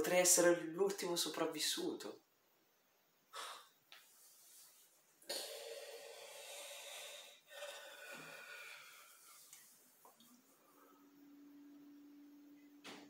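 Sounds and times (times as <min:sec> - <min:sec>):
man breathing heavily: 0:05.3 - 0:09.5.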